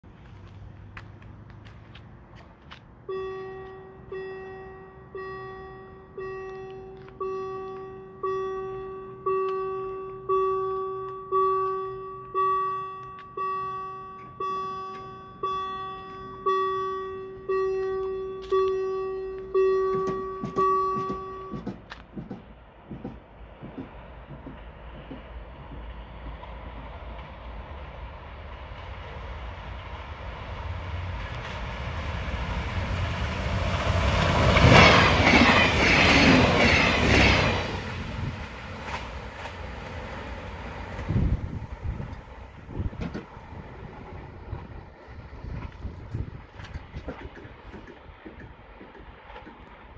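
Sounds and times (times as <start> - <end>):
train rumble: 0.0 - 49.9
level crossing bell ringing: 3.1 - 21.7.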